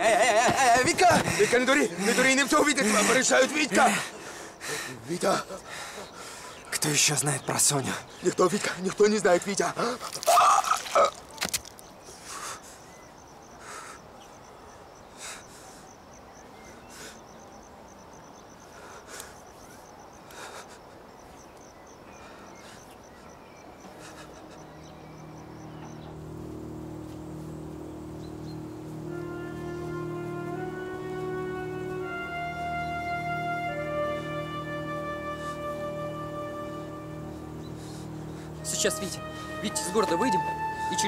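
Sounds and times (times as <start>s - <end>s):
crickets chirping: 0.0s - 41.0s
orchestral film music: 23.8s - 41.0s.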